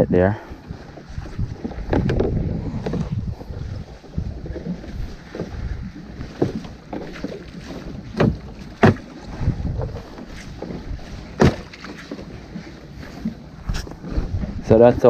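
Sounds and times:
water moving around boat: 0.0s - 15.0s
wind buffeting microphone: 0.0s - 15.0s
knocks and clunks on boat: 0.4s - 15.0s.

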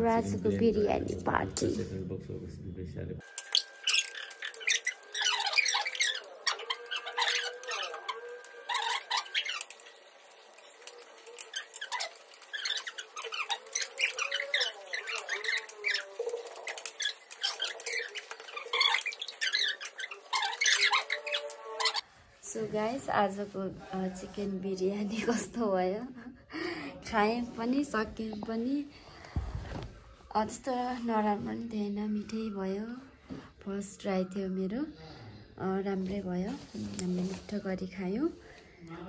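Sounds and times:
high-pitched squeaky chattering: 3.4s - 22.0s.

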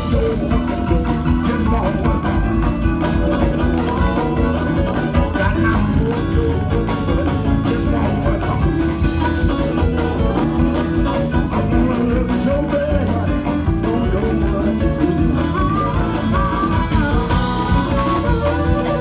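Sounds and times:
keyboard: 0.0s - 19.0s
live blues band: 0.0s - 19.0s
steady beat: 0.0s - 19.0s.

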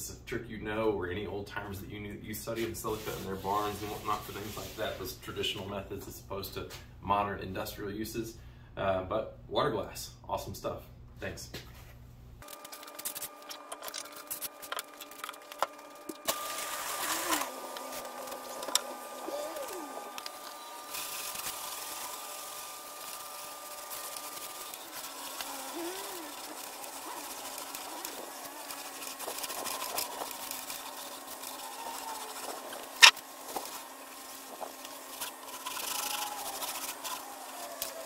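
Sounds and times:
cloth rag wiping wood: 2.6s - 5.7s, 21.9s - 33.0s
faint steady hum: 5.0s - 38.0s.

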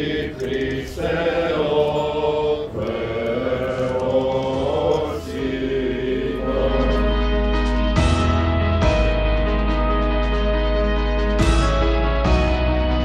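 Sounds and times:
voices chanting: 0.0s - 7.5s
low steady drone: 0.0s - 13.0s.

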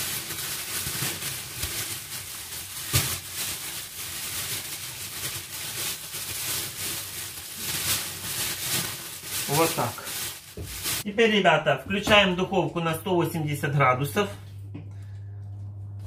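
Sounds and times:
plastic bag crinkling: 0.0s - 11.1s
vegetables shifting in bag: 0.0s - 11.1s.

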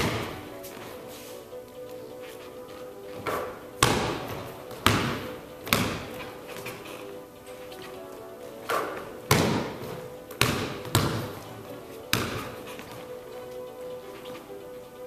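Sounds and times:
basketball bouncing on wooden floor: 0.0s - 0.8s, 3.2s - 7.0s, 8.6s - 13.1s.

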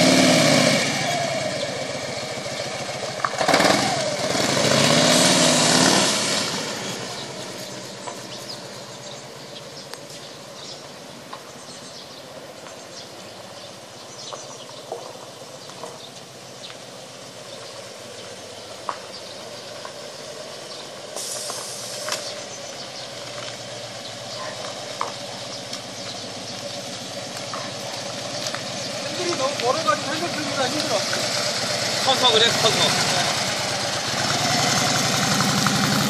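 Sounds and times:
distant motorcycle engine: 0.0s - 36.0s
steady hiss: 21.0s - 22.4s.

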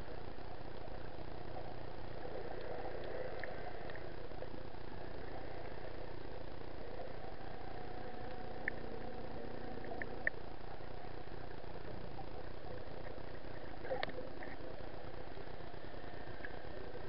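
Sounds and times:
boat engine drone underwater: 0.0s - 17.0s
muffled underwater wash: 0.0s - 17.0s.

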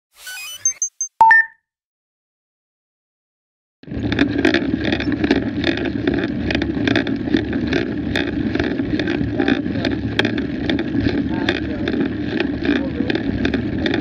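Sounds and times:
rumble of bike tyres and wind: 3.8s - 14.0s
bike rattles and clicks: 3.9s - 14.0s.

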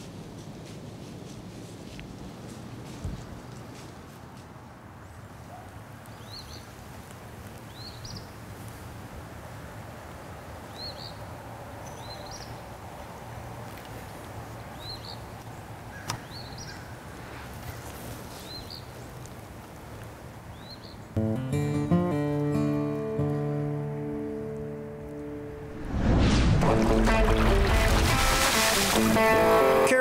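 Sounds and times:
distant traffic hum: 0.0s - 21.3s.

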